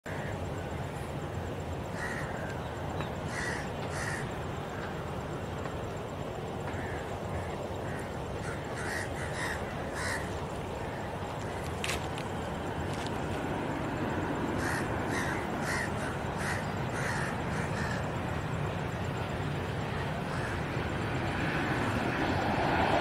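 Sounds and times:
crows cawing: 2.0s - 2.6s, 3.2s - 4.9s, 6.7s - 12.0s, 14.6s - 18.2s, 20.2s - 20.6s.

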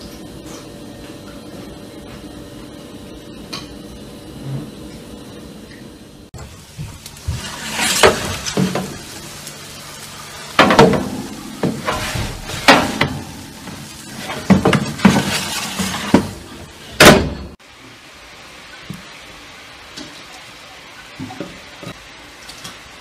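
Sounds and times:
metal baking tray clattering: 7.2s - 9.1s, 10.5s - 17.6s
oven door opening: 10.6s - 17.6s.

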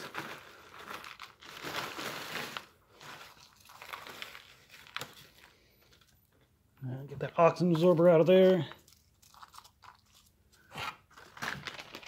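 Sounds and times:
foil pouch crinkling: 0.0s - 6.2s, 7.7s - 12.0s.

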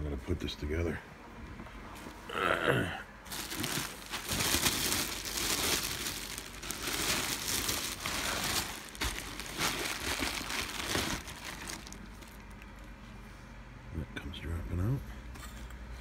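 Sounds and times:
bubble wrap crinkling and popping: 3.3s - 13.0s.

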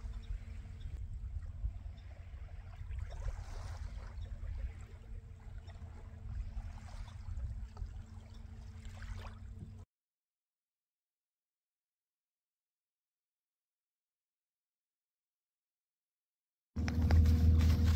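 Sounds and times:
light water sounds: 0.0s - 9.8s
wind rumble on microphone: 0.0s - 9.8s.

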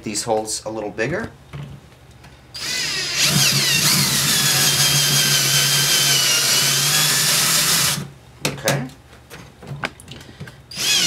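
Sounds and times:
electric drill whining: 2.6s - 8.1s, 10.7s - 11.0s.

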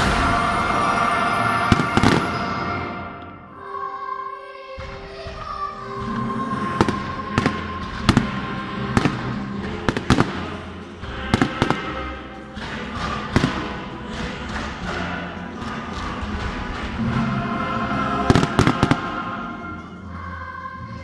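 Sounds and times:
music playing: 0.0s - 21.0s
firework shells bursting: 18.3s - 19.2s.

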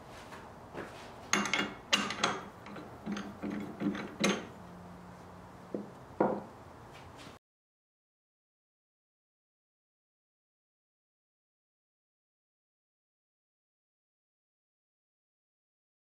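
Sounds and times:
wooden bowl knocking on lathe: 5.7s - 6.5s.

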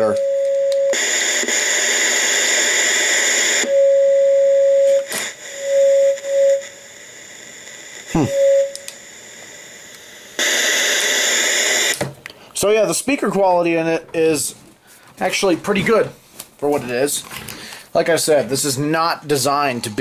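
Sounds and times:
radio static hiss: 0.9s - 3.8s, 4.9s - 12.0s
mid-pitched beep tone: 3.7s - 6.6s, 8.2s - 8.8s.

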